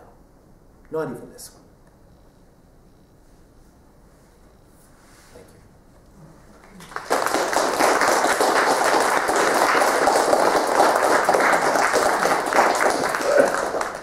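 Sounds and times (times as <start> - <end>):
audience applauding: 6.5 - 14.0.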